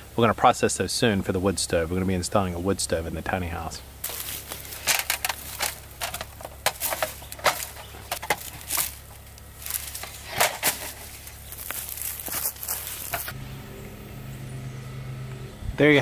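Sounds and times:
dry pine needles crunching: 0:04.0 - 0:13.4
reflector crinkling: 0:04.0 - 0:13.4.

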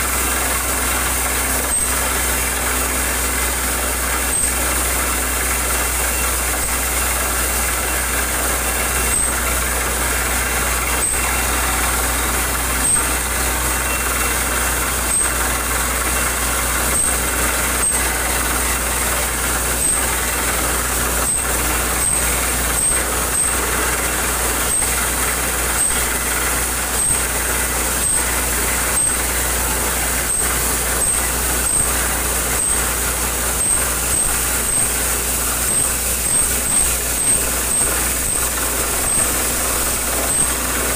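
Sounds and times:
drilling rig running: 0:00.0 - 0:40.9
sharp knocks of drilling rig: 0:00.1 - 0:40.9.

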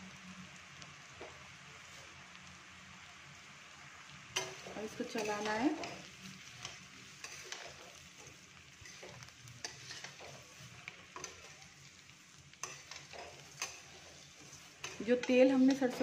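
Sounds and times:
food frying hiss: 0:00.0 - 0:16.0
spatula scraping a pan: 0:04.3 - 0:16.0.

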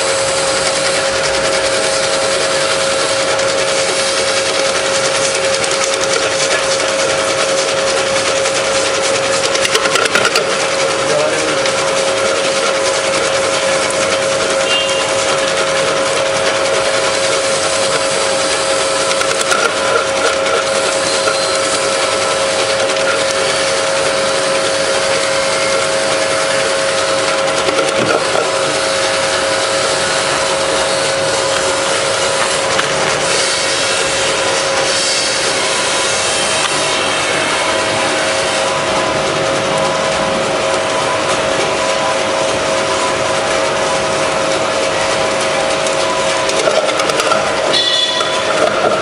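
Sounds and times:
slicing machine motor hum: 0:00.0 - 0:49.0
scraping and rasping of nuts cut: 0:03.1 - 0:37.2, 0:46.4 - 0:49.0.

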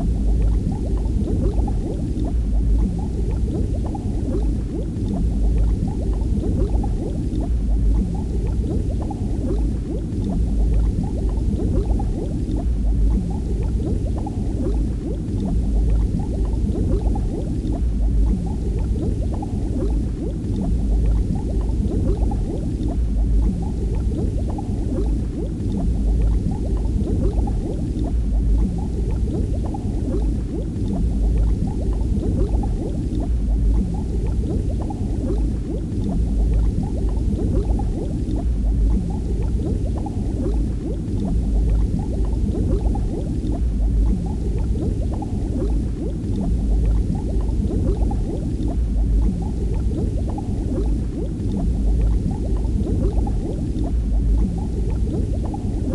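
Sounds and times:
deep rumble: 0:00.0 - 0:55.9
underwater bubbling and gurgling: 0:00.0 - 0:55.9.

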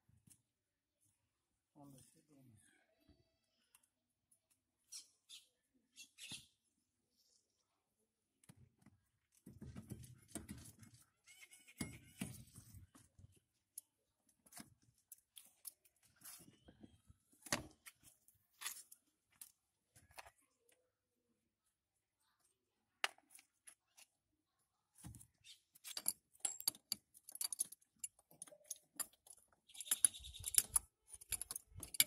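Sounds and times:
pipe fittings clicking and scraping: 0:09.2 - 0:20.5, 0:25.0 - 0:32.0.

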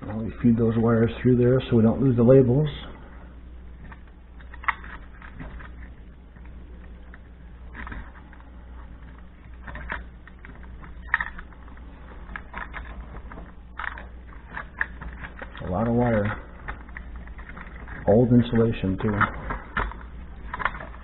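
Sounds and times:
plastic housing clicks and scrapes: 0:19.0 - 0:21.0.

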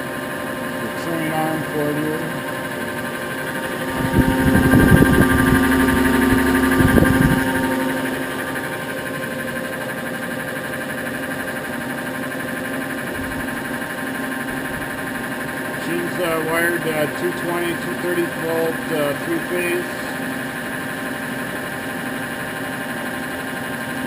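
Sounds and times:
grinder machine hum: 0:00.0 - 0:21.0
mechanical whir with knocks: 0:03.5 - 0:08.7.

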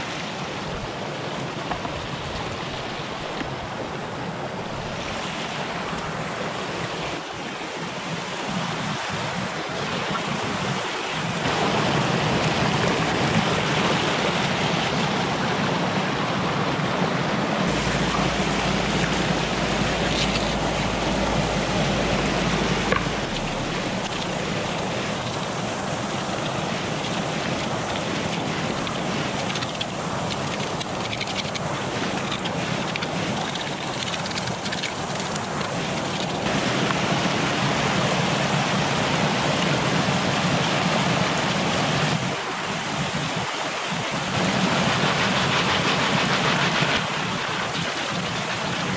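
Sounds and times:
stream rushing over rocks: 0:00.0 - 0:48.9
low rumble: 0:17.7 - 0:25.5.

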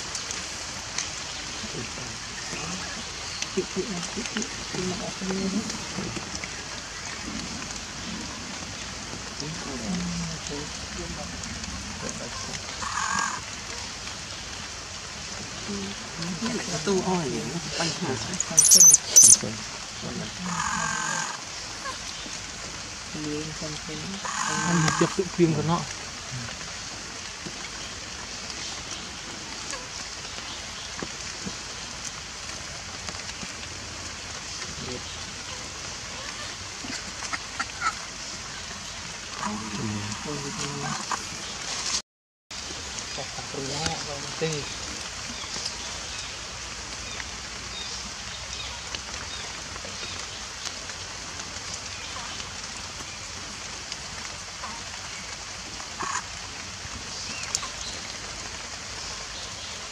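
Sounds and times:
steady rain falling: 0:00.0 - 0:59.9
short chirps: 0:18.6 - 0:19.4.

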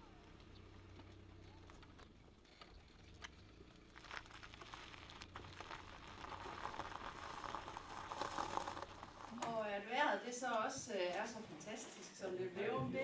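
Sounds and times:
faint low engine hum: 0:00.0 - 0:10.0
tyres crunching on gravel: 0:00.0 - 0:10.7.

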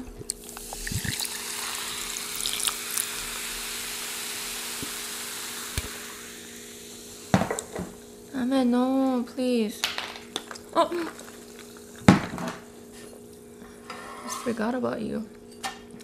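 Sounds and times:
soda fizzing in a glass: 0:00.3 - 0:08.2.

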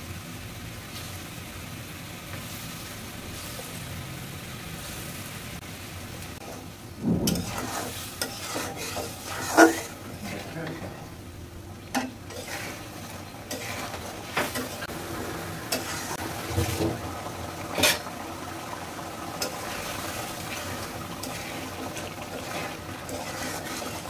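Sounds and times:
gravy bubbling and sizzling: 0:00.0 - 0:24.0
spatula scraping and knocking pan: 0:06.4 - 0:11.1, 0:11.9 - 0:14.9, 0:15.7 - 0:17.0, 0:19.4 - 0:24.0.

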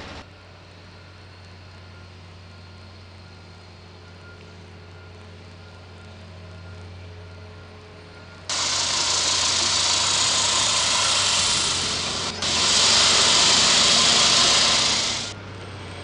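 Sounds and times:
low engine hum: 0:00.0 - 0:16.0
concrete saw cutting pavement: 0:08.5 - 0:15.4.

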